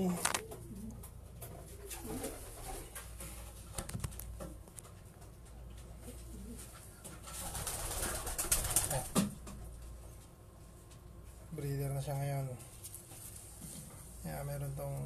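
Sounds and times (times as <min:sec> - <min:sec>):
pigeons cooing: 0:00.0 - 0:03.2, 0:06.0 - 0:09.2
rustling and handling noise: 0:00.0 - 0:11.6, 0:12.2 - 0:15.0.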